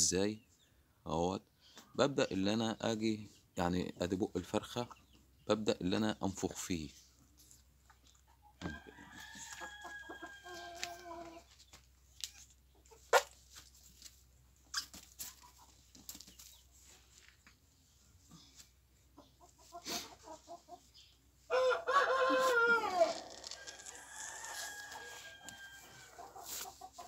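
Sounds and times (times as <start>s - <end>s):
chicken drawn-out call: 8.6s - 11.5s, 21.5s - 27.0s
chicken clucking: 12.4s - 13.4s, 14.6s - 16.7s, 19.0s - 23.6s, 24.4s - 27.0s.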